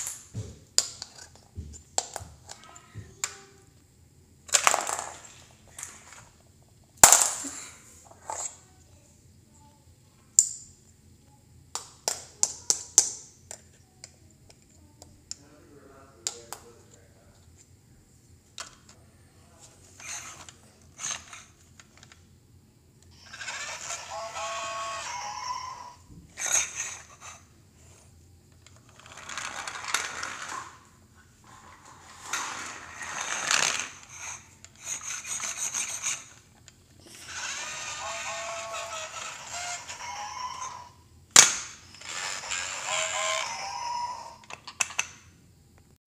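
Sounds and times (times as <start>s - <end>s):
plastic toy train rattling: 20.0s - 22.2s, 28.6s - 30.8s, 31.5s - 36.5s, 37.1s - 40.9s
plastic toy clicks and knocks: 44.4s - 45.2s.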